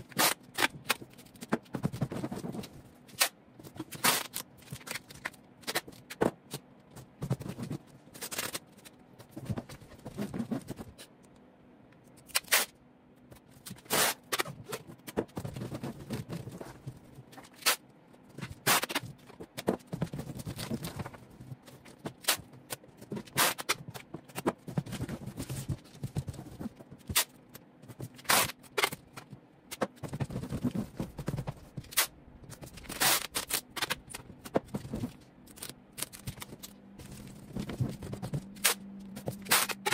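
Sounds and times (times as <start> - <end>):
packing tape pulled and torn: 0.0 - 1.3, 3.1 - 5.9, 12.2 - 12.8, 13.6 - 14.6, 17.4 - 17.8, 18.6 - 19.1, 23.2 - 23.8, 28.2 - 29.0, 32.8 - 34.2, 38.6 - 39.9
cardboard scraping and rustling: 18.4 - 27.2, 34.4 - 39.9.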